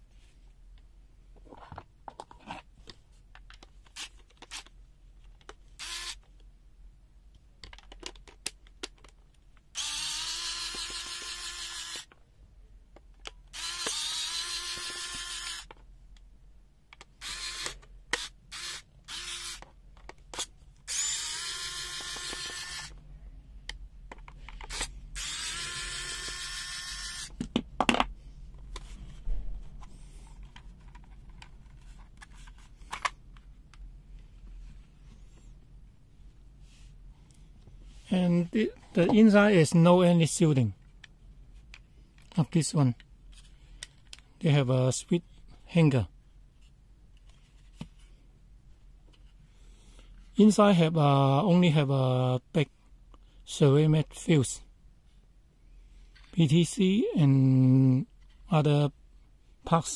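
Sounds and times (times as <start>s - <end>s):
electric screwdriver whining: 5.8s - 6.2s, 9.8s - 12.1s, 13.5s - 15.7s, 17.2s - 19.6s, 20.4s - 23.0s, 24.7s - 27.3s.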